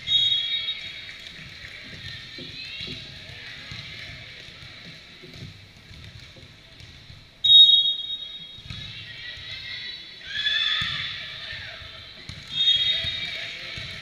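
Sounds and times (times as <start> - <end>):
referee's whistle: 0.0 - 0.9, 7.4 - 8.6, 12.5 - 13.4.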